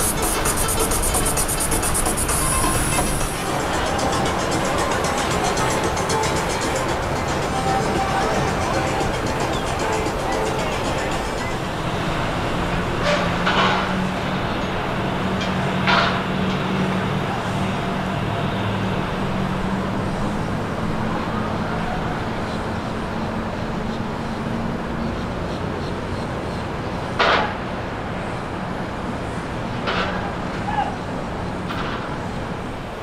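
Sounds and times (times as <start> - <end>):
water wash: 0.0 - 24.8
boat engines droning: 0.0 - 33.0
city traffic noise: 0.0 - 33.0.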